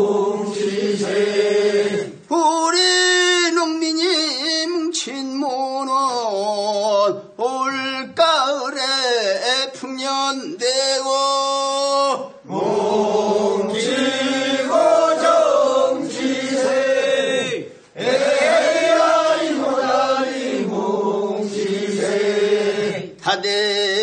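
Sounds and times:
men singing in unison: 0.0s - 24.0s.

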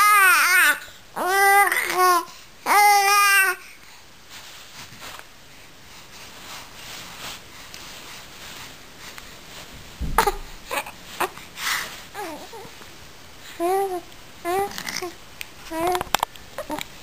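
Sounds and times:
baby cooing: 10.2s - 11.4s, 12.2s - 12.7s, 13.6s - 16.8s.

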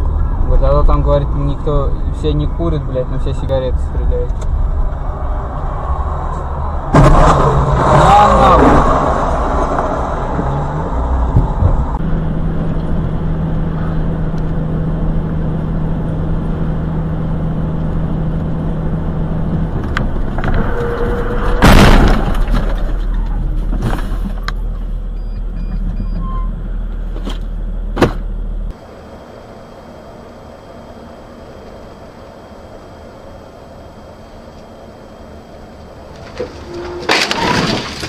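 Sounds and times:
road noise: 0.0s - 38.0s
vehicle engine drone: 0.0s - 38.0s
loud sudden bang: 6.8s - 9.3s, 20.4s - 22.8s.

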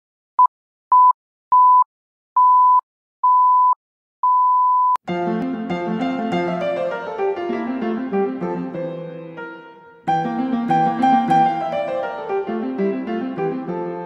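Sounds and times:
piano music: 5.1s - 14.0s.

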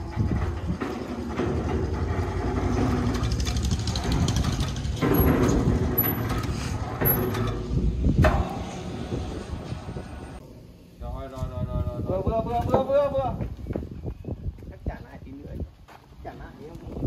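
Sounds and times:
large engine running: 0.0s - 7.7s.

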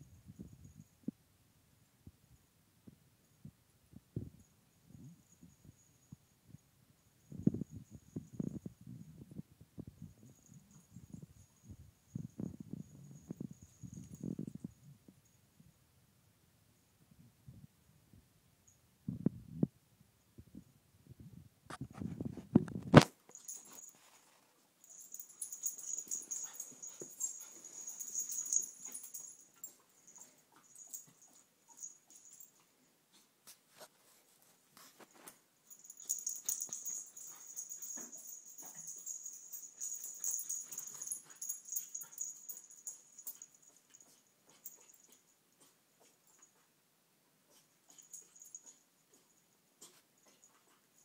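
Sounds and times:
dogs playing rough: 24.8s - 32.5s, 34.8s - 46.5s.

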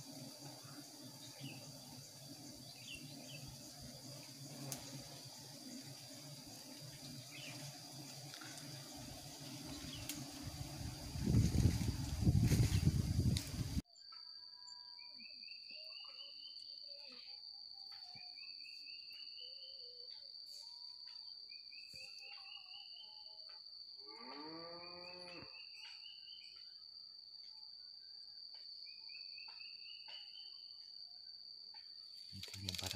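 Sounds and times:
high-pitched insect drone: 0.0s - 31.0s, 31.7s - 32.9s
cow mooing: 24.1s - 25.5s.

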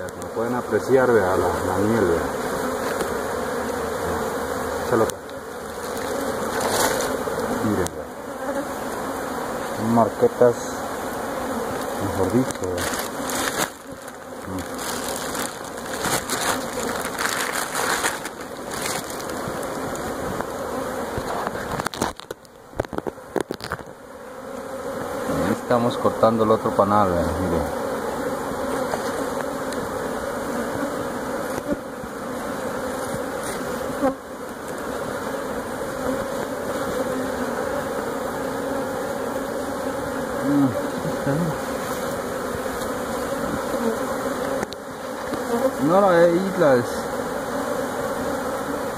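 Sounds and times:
honeybees buzzing: 0.0s - 48.9s
honeycomb crunching: 5.6s - 7.9s, 11.7s - 23.9s
plastic bag rustling: 5.7s - 7.2s, 12.2s - 20.4s.

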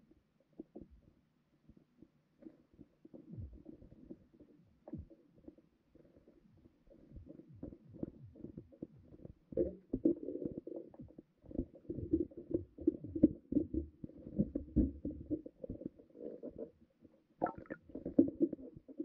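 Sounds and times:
muffled underwater knocks and rumbling: 7.1s - 16.0s.

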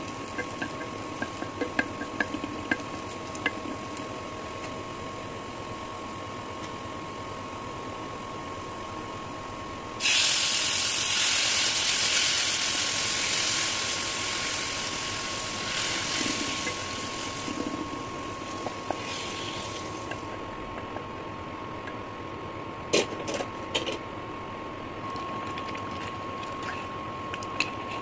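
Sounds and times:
cooktop high whine: 0.0s - 28.0s
gravy sizzling in hot oil: 10.0s - 20.2s.

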